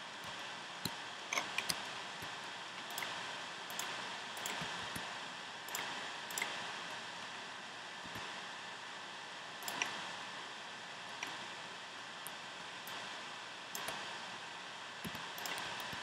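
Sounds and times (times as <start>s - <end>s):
steady hiss: 0.0s - 16.0s
mouse and keyboard clicks: 0.3s - 1.8s, 5.7s - 6.6s, 13.8s - 14.0s, 15.0s - 16.0s.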